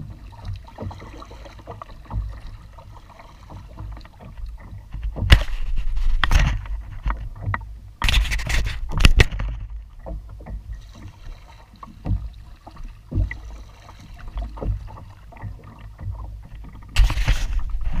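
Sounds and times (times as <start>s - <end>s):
low steady rumble: 0.0s - 8.0s, 8.7s - 18.0s
paddle dipping through water: 0.0s - 18.0s
water splashes: 0.0s - 18.0s
small knocks: 11.8s - 13.6s.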